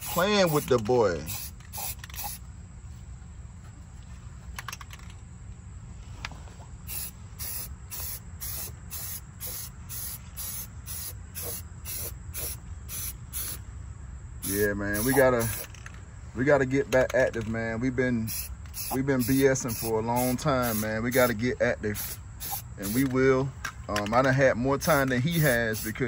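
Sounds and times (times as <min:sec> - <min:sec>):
spray paint can hissing: 0:00.0 - 0:02.4, 0:06.9 - 0:13.6, 0:14.4 - 0:15.7, 0:18.3 - 0:23.1, 0:25.3 - 0:26.0
steady low hum: 0:00.0 - 0:23.9.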